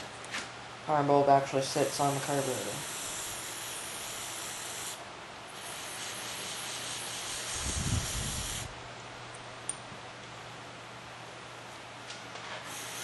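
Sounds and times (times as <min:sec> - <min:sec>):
aerosol can spraying: 0:01.8 - 0:05.0, 0:05.6 - 0:08.7, 0:12.7 - 0:13.0.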